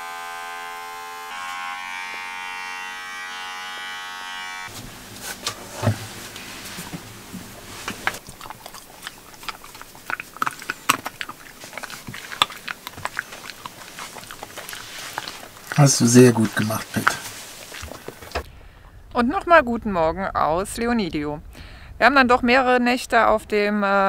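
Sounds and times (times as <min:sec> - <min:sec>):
electric clippers buzzing: 0:00.0 - 0:06.5
dog chewing a treat: 0:06.7 - 0:18.4.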